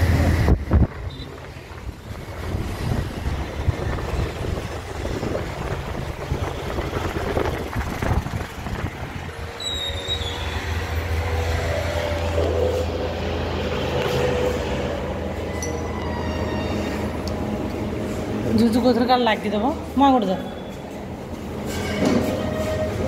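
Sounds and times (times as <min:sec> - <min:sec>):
road traffic noise: 0:00.0 - 0:23.0
high-pitched squeak: 0:09.6 - 0:10.9, 0:15.4 - 0:17.2, 0:21.6 - 0:23.0.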